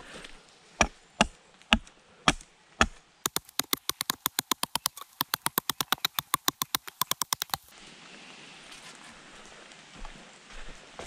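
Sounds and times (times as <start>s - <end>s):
hatchet chopping wood: 0.8s - 7.7s.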